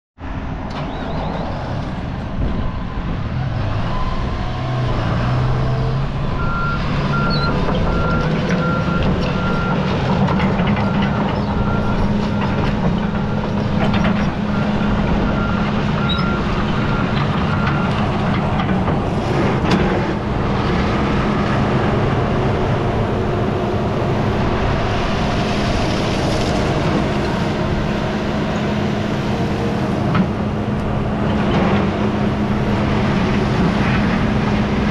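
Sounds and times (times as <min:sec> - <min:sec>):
excavator diesel engine running: 0:00.6 - 0:34.9.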